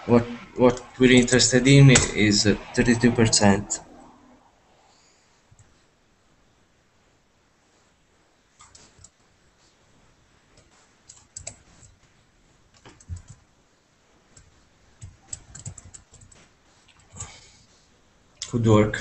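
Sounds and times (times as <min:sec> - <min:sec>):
keyboard and mouse clicks: 0:08.6 - 0:09.2, 0:10.6 - 0:11.9, 0:12.7 - 0:13.4, 0:14.3 - 0:17.3.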